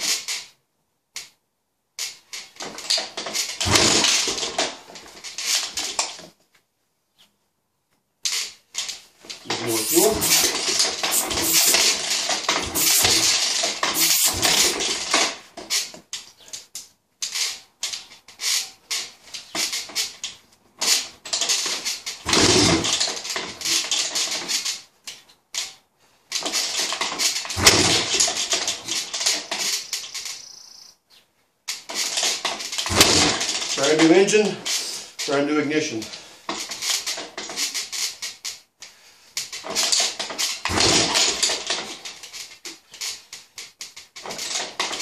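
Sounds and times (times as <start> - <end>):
dirt bike engine kick-starting: 2.6 - 5.7, 9.4 - 15.9, 20.8 - 24.6, 26.4 - 30.5, 31.8 - 38.4, 39.5 - 42.7
engine sharp pops: 9.5 - 15.2, 22.3 - 23.0, 27.5 - 28.6, 32.8 - 33.6, 40.7 - 41.5.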